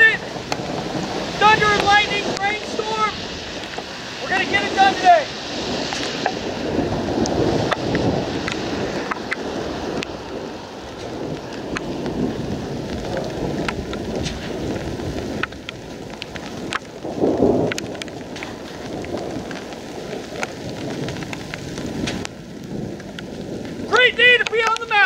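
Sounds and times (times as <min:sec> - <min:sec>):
low rumble of thunder: 0:00.0 - 0:24.2
raindrops ticking close by: 0:00.0 - 0:25.0
steady rain: 0:00.0 - 0:25.0.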